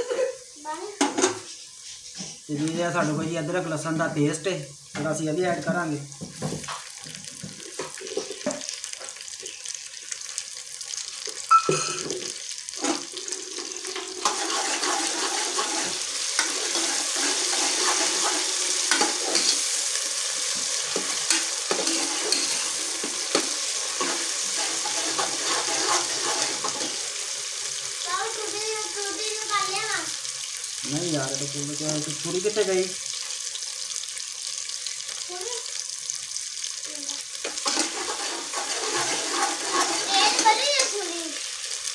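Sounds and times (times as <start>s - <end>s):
onions sizzling in hot oil: 0.0s - 41.9s
ladle scraping pot: 12.8s - 19.7s, 20.9s - 27.0s, 37.4s - 40.4s.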